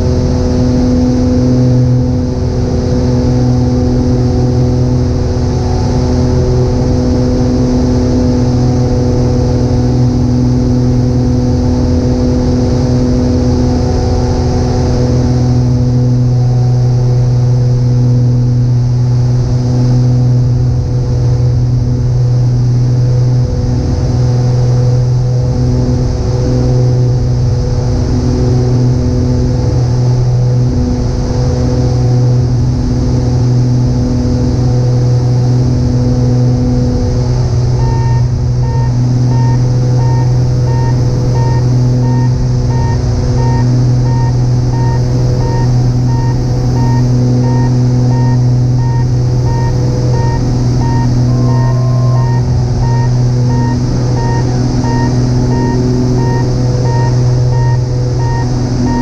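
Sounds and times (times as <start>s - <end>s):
airplane engine drone: 0.0s - 59.0s
short beeps: 37.8s - 59.0s.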